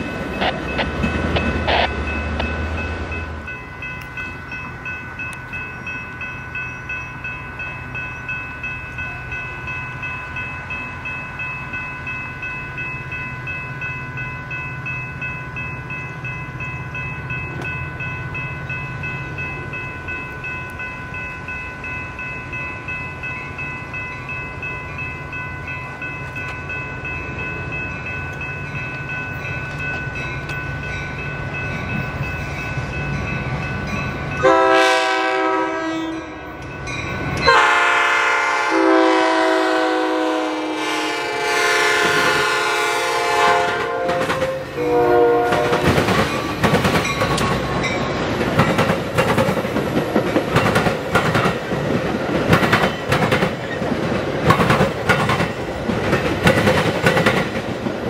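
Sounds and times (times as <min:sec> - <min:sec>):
low rumble of approaching train: 0:00.0 - 0:58.0
railroad crossing bell ringing: 0:00.0 - 0:58.0
train horn: 0:34.4 - 0:36.6, 0:37.4 - 0:46.0.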